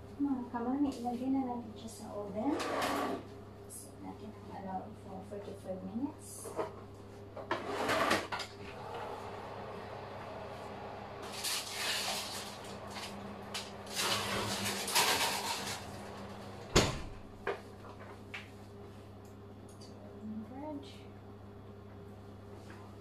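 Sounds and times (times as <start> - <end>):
oven door shutting: 7.5 - 17.6
low hum: 8.6 - 18.2.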